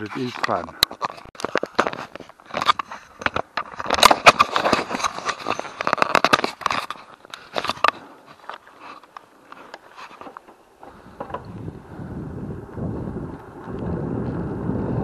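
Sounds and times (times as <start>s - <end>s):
camera rubbing against clothing: 0.0s - 10.4s.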